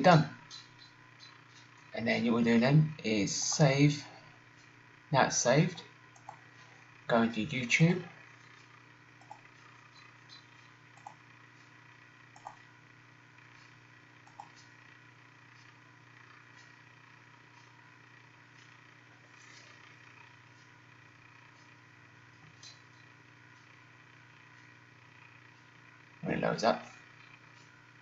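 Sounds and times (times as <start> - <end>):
faint steady hum: 0.0 - 28.0
computer mouse clicks: 6.2 - 6.4, 9.2 - 11.2, 12.3 - 12.7, 14.2 - 14.8.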